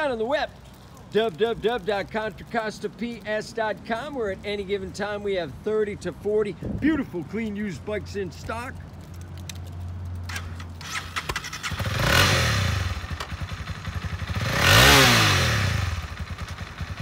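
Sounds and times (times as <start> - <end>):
motorcycle engine idling and revving: 9.1 - 17.0.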